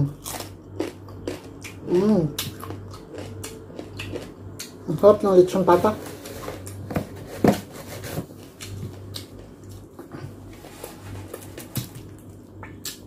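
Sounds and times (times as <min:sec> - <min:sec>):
chewing and mouth sounds: 0:00.0 - 0:05.0, 0:08.4 - 0:10.4, 0:11.3 - 0:13.0
low steady hum: 0:00.0 - 0:13.0.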